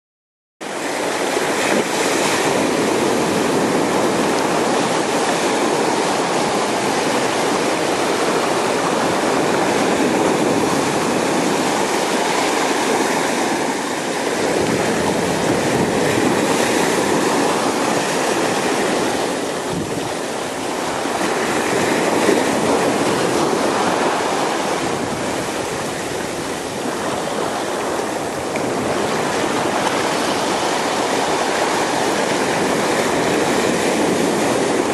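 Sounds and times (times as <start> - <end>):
sea waves washing over rocks: 0.6 - 34.9.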